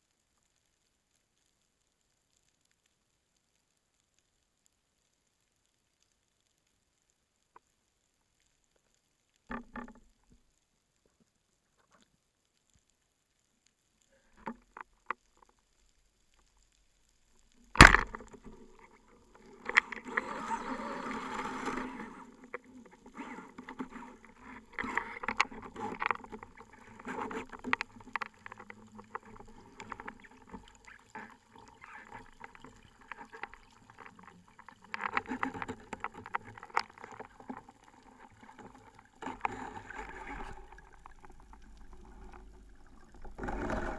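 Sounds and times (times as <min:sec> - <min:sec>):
faint clicks: 0:00.0 - 0:43.9
reel line clicking and rattling: 0:17.7 - 0:43.9
speargun firing crack: 0:17.8 - 0:18.2.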